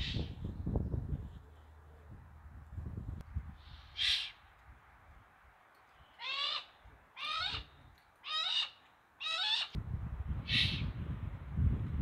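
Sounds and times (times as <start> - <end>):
owl calling: 3.6 - 4.4, 6.1 - 9.8.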